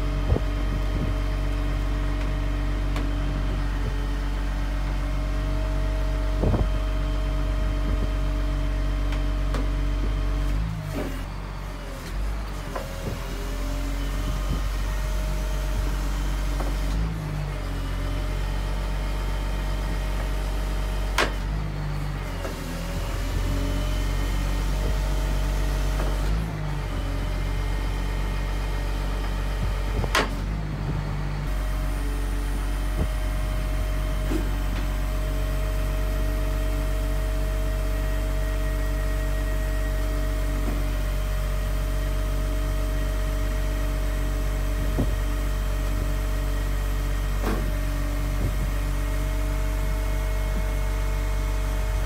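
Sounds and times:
diesel engine under hydraulic load: 0.0 - 52.0.

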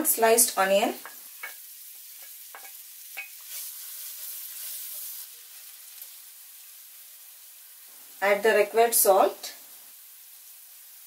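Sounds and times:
onion sizzling in hot oil: 0.0 - 11.0.

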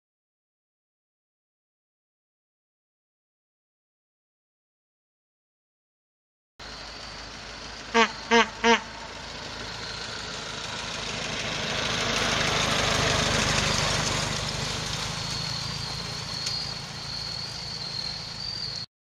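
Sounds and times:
old truck engine driving past: 6.6 - 18.9
short horn honk: 8.0 - 8.9.

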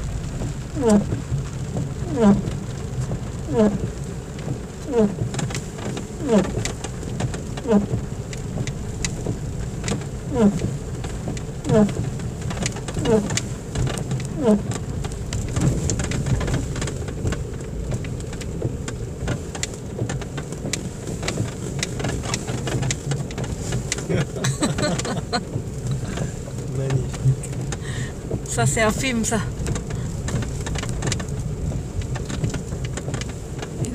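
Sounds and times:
car rolling on dirt road: 0.0 - 33.9
rain ticking on windscreen: 0.0 - 33.9
windscreen wipers squeaking: 0.0 - 33.9.

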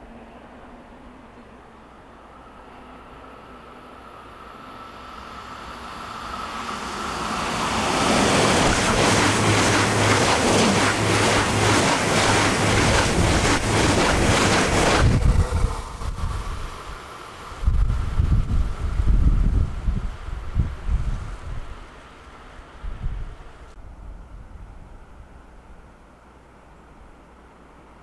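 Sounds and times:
train rushing past: 0.0 - 23.7
gusty wind rumble: 3.5 - 25.8.

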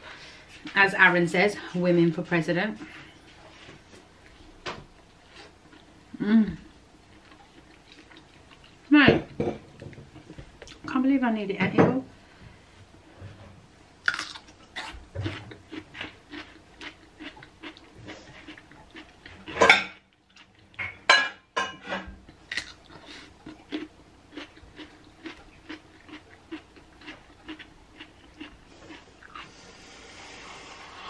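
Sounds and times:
cucumber crunching and chewing: 14.0 - 19.6, 22.4 - 29.6.

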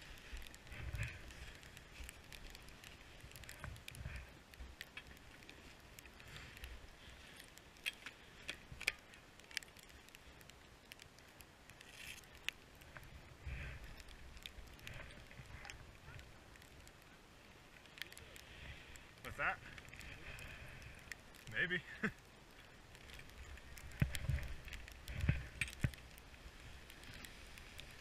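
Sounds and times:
skis swishing through snow: 23.2 - 28.0.

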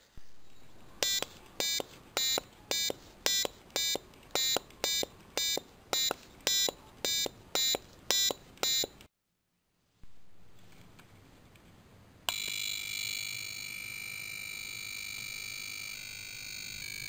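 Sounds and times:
piezo buzzer beeps: 1.0 - 9.0.

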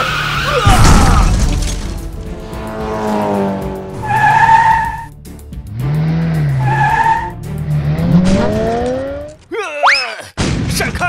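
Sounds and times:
tyre squeals: 4.0 - 5.1, 6.6 - 7.4.

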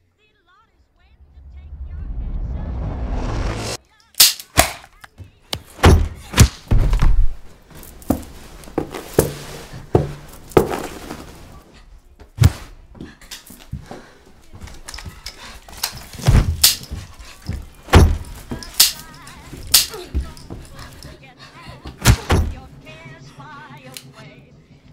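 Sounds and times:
thuds and blows of fighting: 5.7 - 7.5, 16.0 - 18.8, 21.9 - 22.7.

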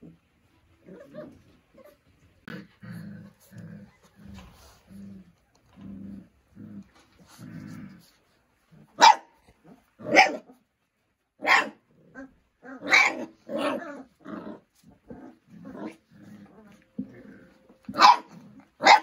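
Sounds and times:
puppies growling: 0.0 - 10.8, 11.6 - 19.0
puppies barking and yipping: 12.4 - 19.0.

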